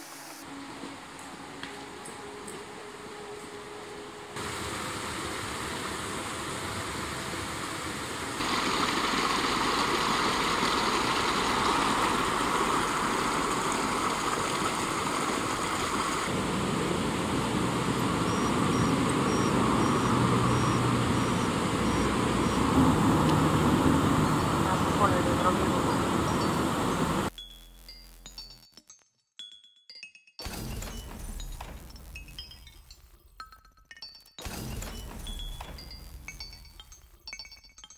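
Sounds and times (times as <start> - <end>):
rushing stream water: 0.0 - 27.3.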